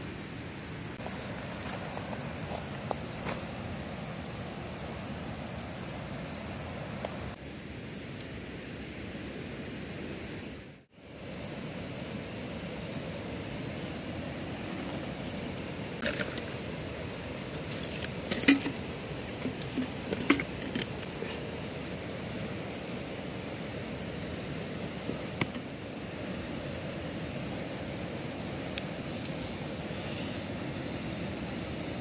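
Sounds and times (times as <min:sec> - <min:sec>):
outdoor background hiss: 0:00.0 - 0:32.0
small things clicking and rattling: 0:17.4 - 0:21.4.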